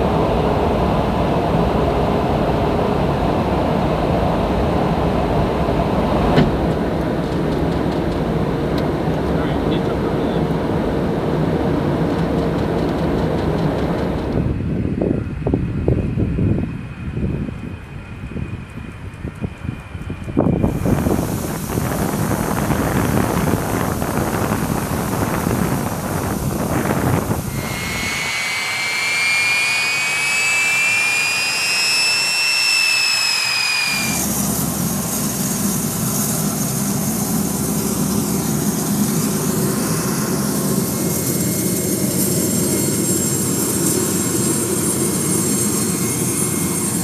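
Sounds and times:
high jet engine whine: 0:00.0 - 0:47.0
jet engine rumble: 0:00.0 - 0:47.0
jet engine rushing noise: 0:20.2 - 0:47.0.

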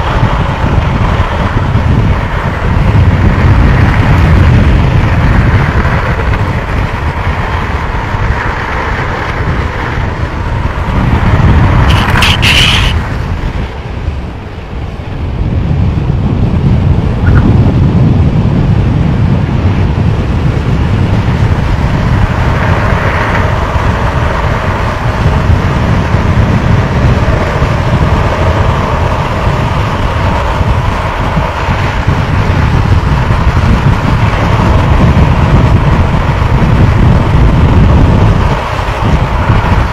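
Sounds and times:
wheels rolling on asphalt: 0:00.0 - 0:39.9
wind buffeting microphone: 0:00.0 - 0:39.9
brief harsh hiss: 0:11.9 - 0:13.0.

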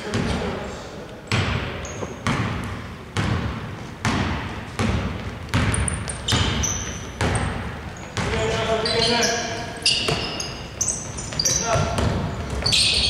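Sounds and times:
basketball bouncing on hardwood: 0:01.3 - 0:08.6, 0:11.3 - 0:13.0.

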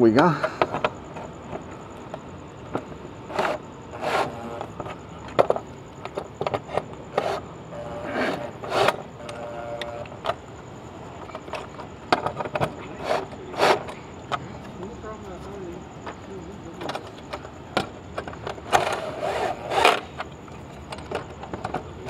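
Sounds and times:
socket scraping bursts: 0:02.7 - 0:10.4, 0:11.2 - 0:14.5, 0:16.9 - 0:20.3
brief whir: 0:18.7 - 0:20.2.

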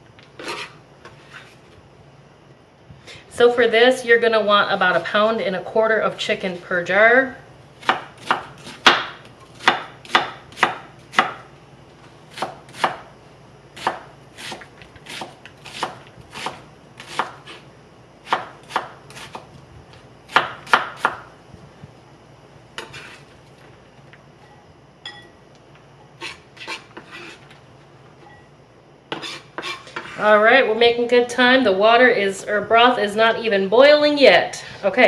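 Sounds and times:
knife chopping on plastic board: 0:07.8 - 0:11.4, 0:13.8 - 0:17.6.

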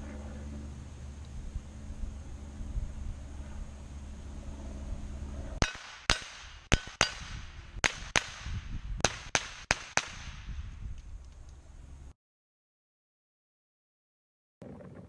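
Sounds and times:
carbine gunshots: 0:05.6 - 0:10.5.

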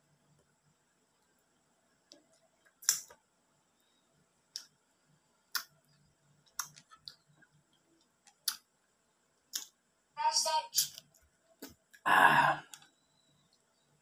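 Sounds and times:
wet mouth clicks and lip smacks: 0:02.3 - 0:03.2, 0:05.5 - 0:05.8, 0:06.5 - 0:07.2, 0:08.2 - 0:08.6, 0:09.5 - 0:09.8.

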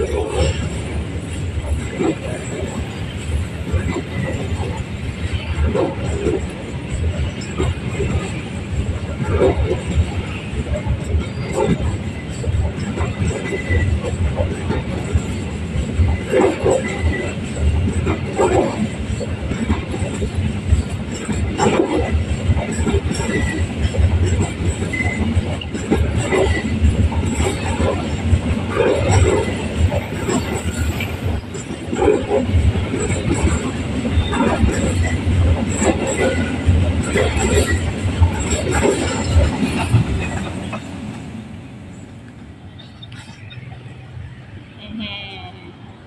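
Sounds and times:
train wheels rumbling on rails: 0:00.0 - 0:46.0
wagon clatter: 0:10.7 - 0:41.0.

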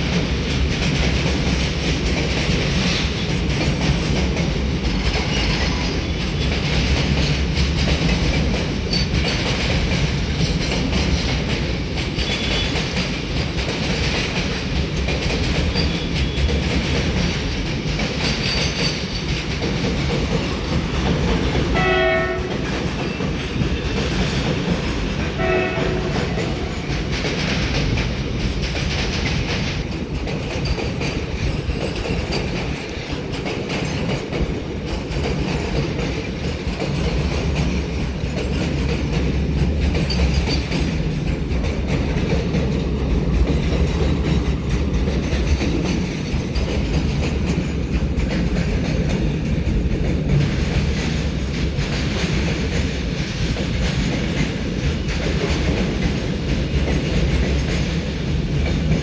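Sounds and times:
freight train wheels rumbling on rails: 0:00.0 - 0:59.0.

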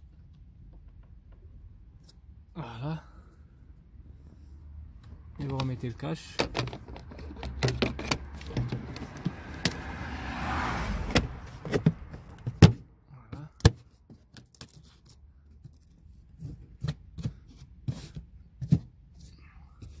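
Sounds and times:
sharp knocks and clicks: 0:00.1 - 0:01.6, 0:05.4 - 0:09.9.

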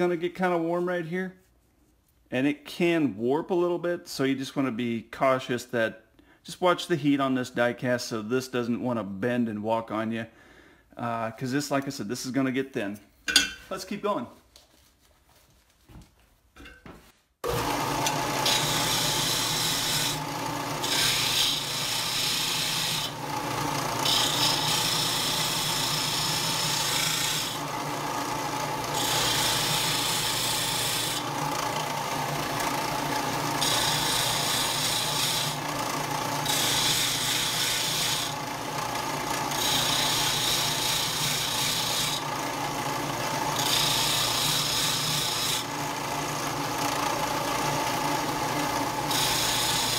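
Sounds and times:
disc sander motor hum: 0:17.4 - 0:49.9
metal grinding rasp: 0:18.0 - 0:27.6, 0:28.6 - 0:31.4, 0:32.5 - 0:45.8, 0:46.8 - 0:49.9.

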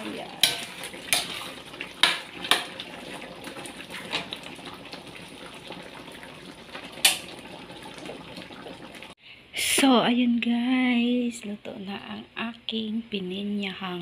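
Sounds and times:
sauce bubbling: 0:00.0 - 0:09.2
metal spatula clacking on wok: 0:00.4 - 0:01.4.

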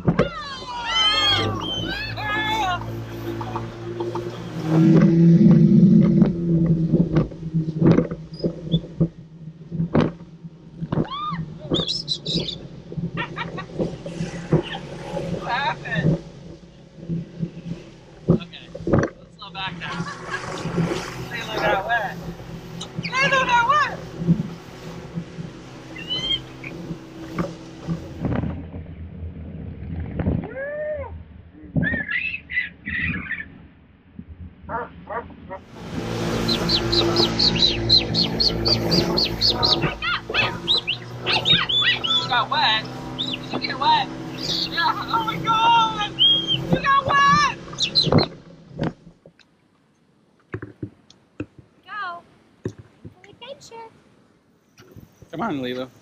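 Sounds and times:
boat motor humming: 0:00.0 - 0:56.0
rising and falling call: 0:00.4 - 0:06.0, 0:25.8 - 0:26.9, 0:31.8 - 0:33.6, 0:35.8 - 0:48.3
thumps: 0:03.4 - 0:12.6, 0:18.2 - 0:19.2
parrot calling and squawking: 0:25.9 - 0:26.5, 0:31.9 - 0:33.5, 0:36.4 - 0:42.4.

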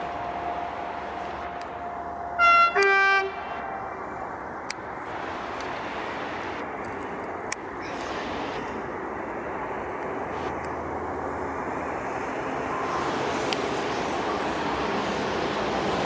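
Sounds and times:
train approaching: 0:00.0 - 0:16.0
two-note locomotive horn blast: 0:02.4 - 0:03.9.

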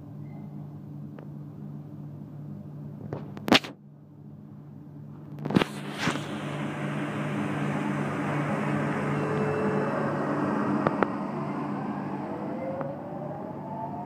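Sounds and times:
train motors humming: 0:00.7 - 0:14.0
rushing noise: 0:05.6 - 0:14.0.

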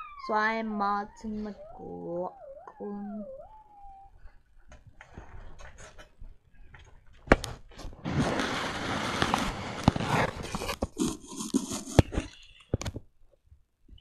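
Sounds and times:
clothing rustling against microphone: 0:04.2 - 0:12.6.

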